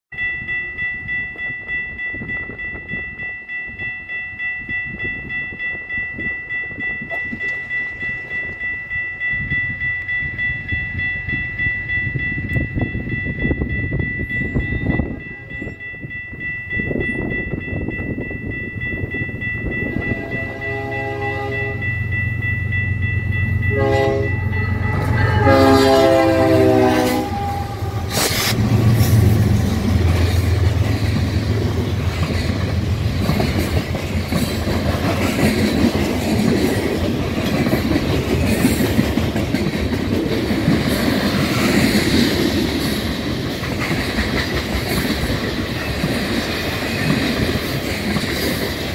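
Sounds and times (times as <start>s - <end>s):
steady high tone: 0.1s - 34.4s
train horn blasts: 19.9s - 22.0s, 23.7s - 28.6s
train wheels clickety-clack: 28.1s - 48.9s.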